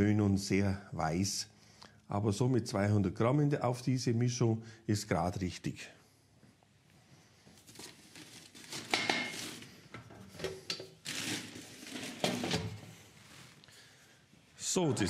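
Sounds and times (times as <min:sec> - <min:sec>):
rustling and crinkling: 0:06.8 - 0:10.4, 0:11.0 - 0:13.7.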